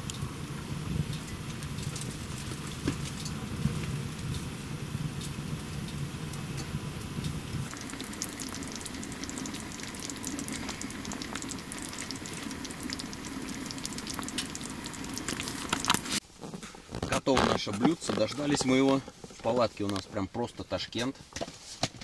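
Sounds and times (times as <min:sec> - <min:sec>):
stew sizzling in a pan: 0:07.0 - 0:16.2.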